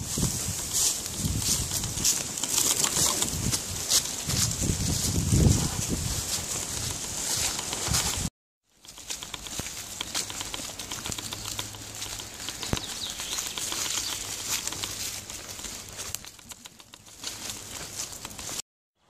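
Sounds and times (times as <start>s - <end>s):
footsteps on dirt track: 0.0s - 18.6s
rustling through vegetation: 0.0s - 18.6s
small clicks: 6.8s - 18.6s.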